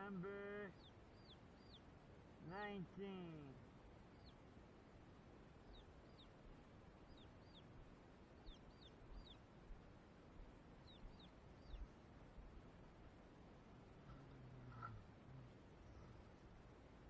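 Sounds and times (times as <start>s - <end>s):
chicks peeping: 0.8s - 1.8s, 4.1s - 4.4s, 5.7s - 6.4s, 7.1s - 7.7s, 8.4s - 9.4s, 10.8s - 11.9s.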